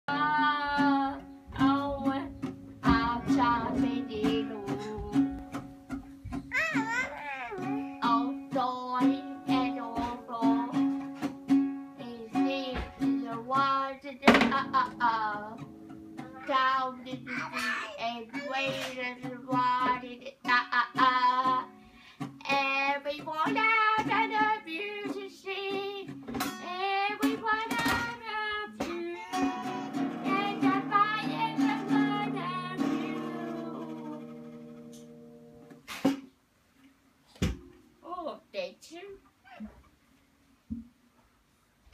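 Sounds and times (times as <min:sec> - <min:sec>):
girl singing: 0:00.0 - 0:05.6, 0:06.4 - 0:11.0, 0:11.9 - 0:15.6, 0:16.2 - 0:21.8, 0:22.4 - 0:35.4
classical guitar strumming: 0:00.2 - 0:07.0, 0:07.6 - 0:17.3, 0:26.0 - 0:36.2.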